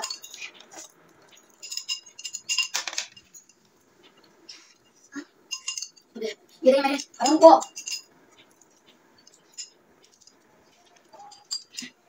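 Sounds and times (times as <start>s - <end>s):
spoons clinking against glass bowls: 0.0s - 3.6s, 5.5s - 6.1s, 6.8s - 12.0s.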